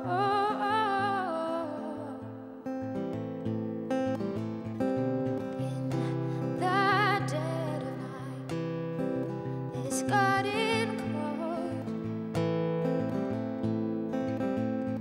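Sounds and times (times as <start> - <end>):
woman singing: 0.0 - 2.8, 5.3 - 12.3
acoustic guitar: 0.0 - 15.0.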